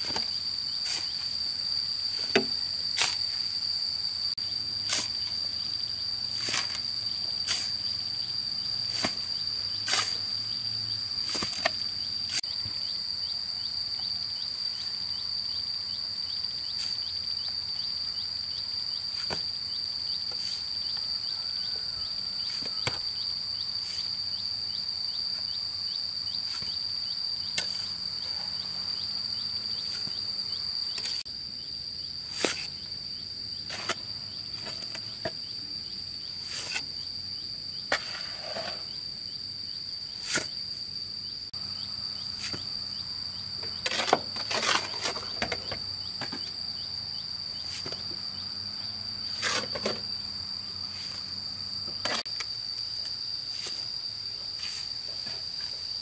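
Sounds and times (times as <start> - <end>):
high-pitched insect buzz: 0.0 - 56.0
shovel scraping wet mortar: 4.9 - 5.3, 36.4 - 36.9, 40.2 - 40.6, 43.8 - 45.4.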